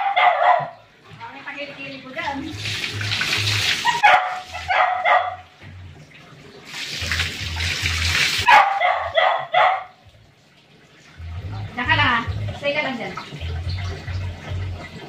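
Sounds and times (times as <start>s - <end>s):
dog barking: 0.0s - 0.8s, 3.8s - 5.5s, 8.4s - 10.0s
water splashing over dog: 1.6s - 5.3s.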